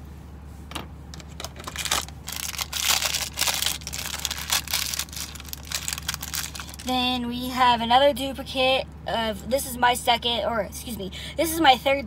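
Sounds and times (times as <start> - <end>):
plastic packaging crinkling: 1.2 - 6.9.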